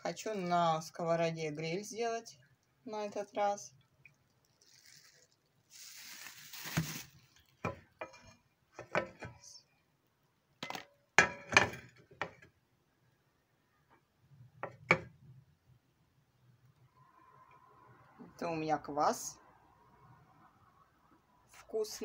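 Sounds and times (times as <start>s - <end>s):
soft hiss: 3.6s - 7.6s
kitchenware clinks and knocks: 10.6s - 12.5s.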